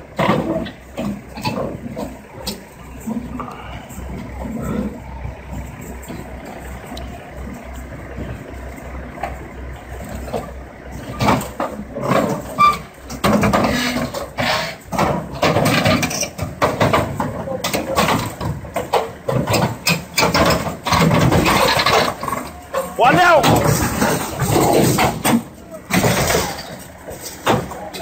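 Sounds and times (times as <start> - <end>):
excavator diesel engine running: 0.0 - 28.0
loud irregular clatter: 9.2 - 28.0
people shouting: 22.5 - 23.7.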